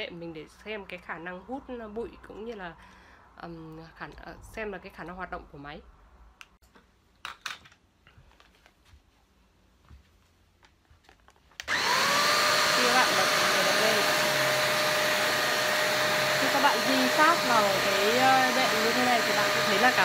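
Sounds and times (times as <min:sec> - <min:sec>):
handheld vacuum motor whirring: 0:11.6 - 0:20.0.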